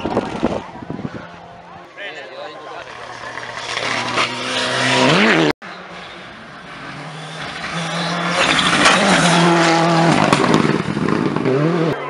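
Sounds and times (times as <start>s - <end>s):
car on gravel: 2.6s - 12.0s
rally car engine revving: 2.8s - 5.5s, 6.6s - 12.0s.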